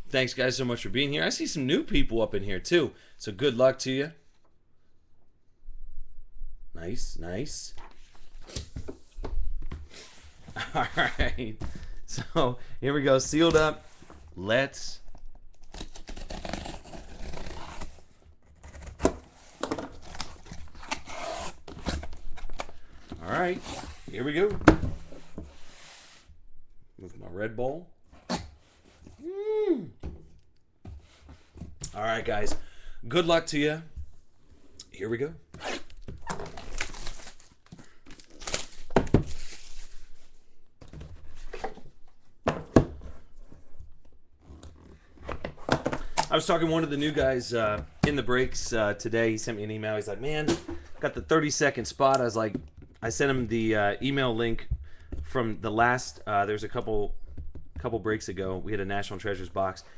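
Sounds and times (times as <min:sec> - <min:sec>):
tape tearing: 0:15.6 - 0:18.0, 0:35.6 - 0:37.5, 0:38.1 - 0:39.9
shrink wrap tearing and crinkling: 0:35.9 - 0:39.8.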